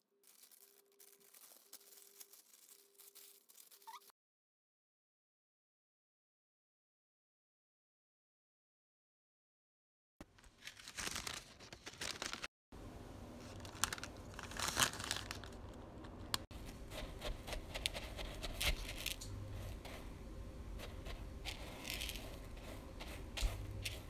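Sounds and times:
paper crinkling: 0.0 - 4.1, 10.3 - 12.5, 13.4 - 20.0, 20.8 - 24.0
scissors snipping paper: 0.2 - 4.1, 16.7 - 19.9
low steady hum: 15.1 - 24.0.

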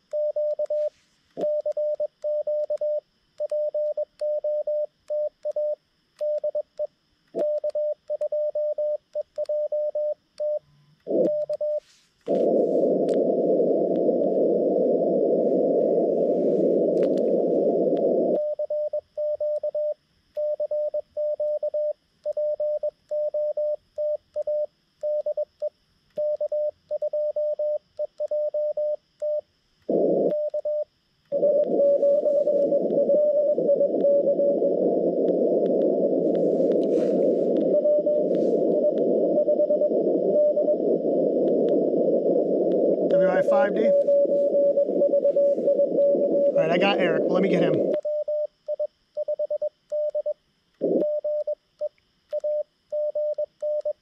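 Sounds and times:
receiver hiss: 0.0 - 22.2, 24.6 - 54.0
morse code tone: 35.9 - 41.0, 43.2 - 50.2.

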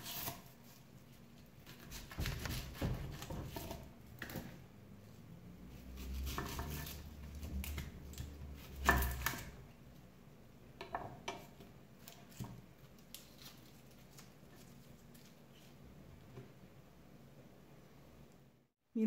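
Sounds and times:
knife slicing onion on board: 0.0 - 0.8, 1.6 - 4.6, 5.9 - 9.6
onion rustling: 12.0 - 15.9.

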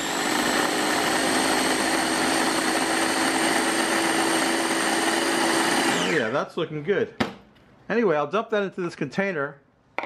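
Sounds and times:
food chopper motor whirring: 0.0 - 6.3.

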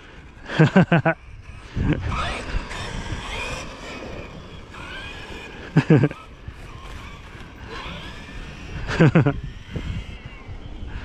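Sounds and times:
rc truck electric motor whine: 0.0 - 11.0.

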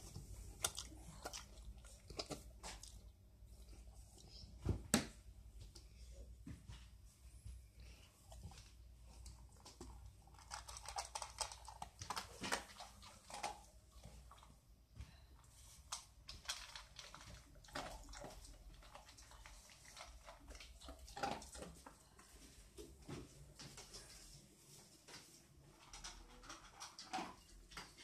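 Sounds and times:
dog chewing dry kibble: 9.2 - 14.5, 15.9 - 21.8.

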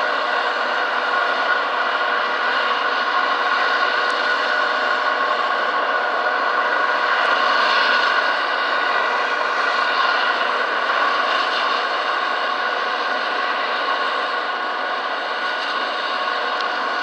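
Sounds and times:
helicopter rotor rushing noise: 0.0 - 17.0
helicopter turbine whine: 0.0 - 17.0.

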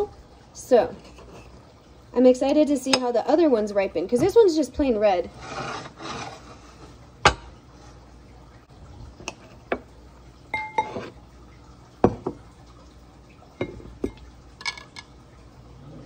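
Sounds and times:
knife plate and bowl clinking: 10.6 - 11.2.

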